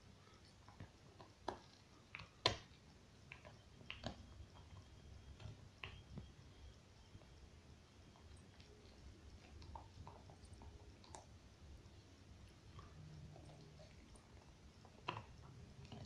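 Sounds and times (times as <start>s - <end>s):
dog teeth cracking on bone: 0.6s - 4.8s, 12.7s - 16.0s.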